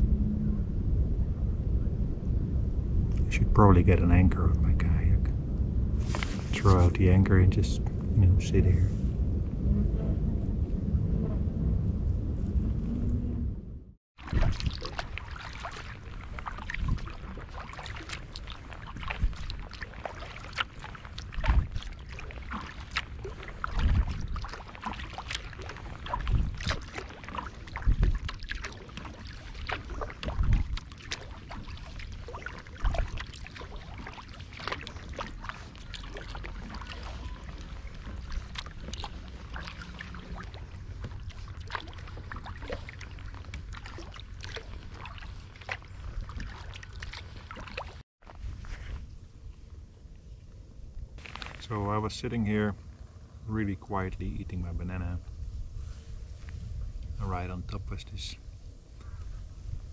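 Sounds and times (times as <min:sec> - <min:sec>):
low steady rumble: 0:00.0 - 0:59.9
paddle splashing in water: 0:14.2 - 0:49.0.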